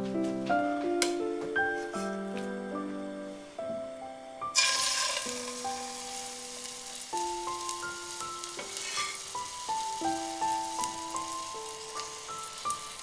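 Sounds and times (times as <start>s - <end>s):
soft melody: 0.0s - 13.0s
chicken sizzling in hot oil: 4.5s - 13.0s.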